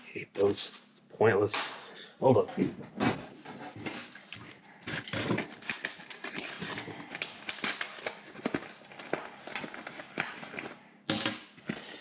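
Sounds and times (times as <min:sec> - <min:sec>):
stiff plastic crackling: 0:04.4 - 0:10.8.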